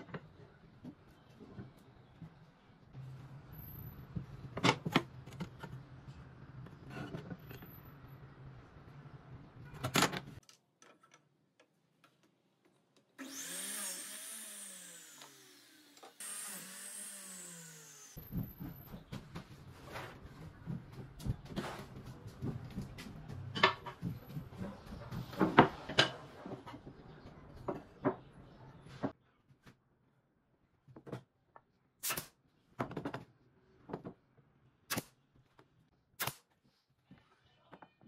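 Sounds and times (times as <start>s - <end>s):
miter saw motor spinning: 13.2s - 18.2s.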